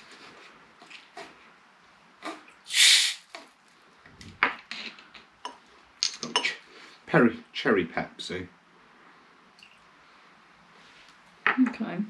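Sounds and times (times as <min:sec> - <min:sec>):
can ring-pull hiss: 0:02.7 - 0:03.3.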